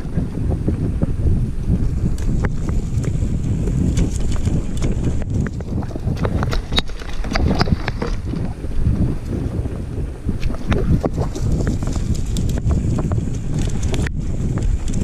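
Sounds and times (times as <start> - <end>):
wind rumble on microphone: 0.0 - 15.0
bike clicking and rattling: 2.2 - 8.3.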